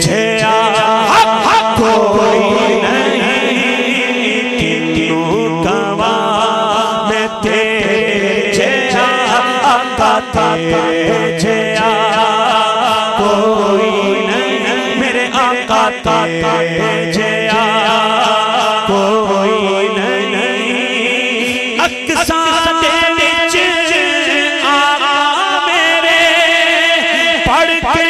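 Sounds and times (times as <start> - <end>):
steady held drone: 0.0 - 21.8
man singing through microphone: 0.0 - 28.0.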